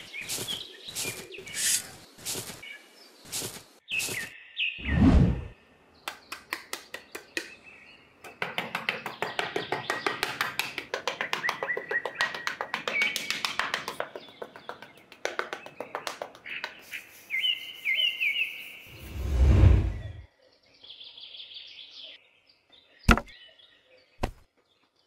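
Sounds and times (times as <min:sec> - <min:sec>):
trowel scraping sand: 0:00.0 - 0:02.6
birds chirping: 0:00.0 - 0:25.0.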